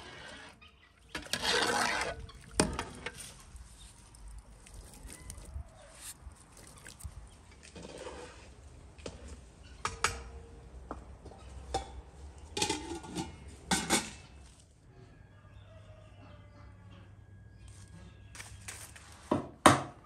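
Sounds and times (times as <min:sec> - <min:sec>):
metal ladle scraping pot: 0:00.0 - 0:08.6, 0:12.5 - 0:14.4.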